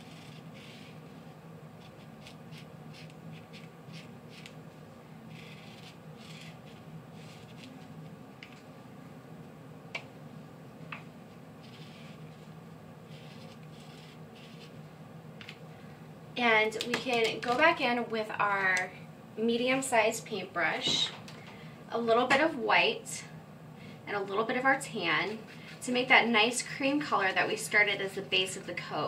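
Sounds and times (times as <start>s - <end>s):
marker pen scratching on felt: 1.8s - 4.5s, 5.3s - 7.7s, 11.6s - 12.2s, 13.1s - 14.8s.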